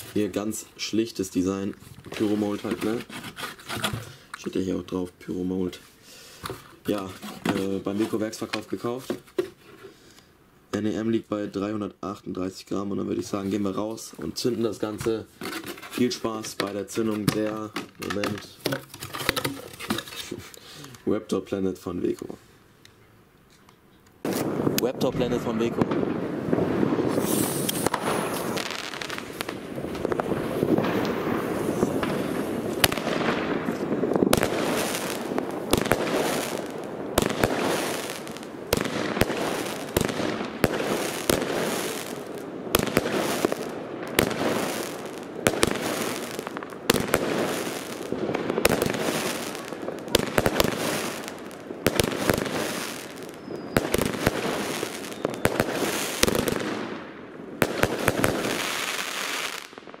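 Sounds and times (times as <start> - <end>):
firework bursts banging and crackling: 0.0 - 9.4, 12.8 - 20.2, 24.2 - 60.0
fireworks launching: 24.2 - 60.0.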